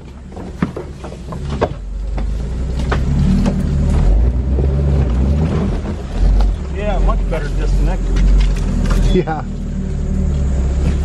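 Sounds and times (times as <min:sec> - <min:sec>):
car engine running at low speed: 0:00.0 - 0:11.0
branches scraping and snapping: 0:07.4 - 0:09.3.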